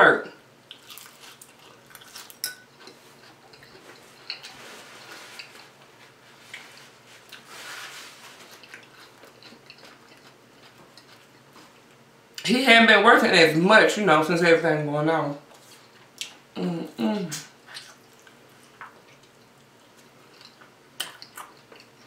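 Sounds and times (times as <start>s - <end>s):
chewing salad: 0.6s - 12.4s, 15.5s - 16.4s, 17.4s - 22.0s.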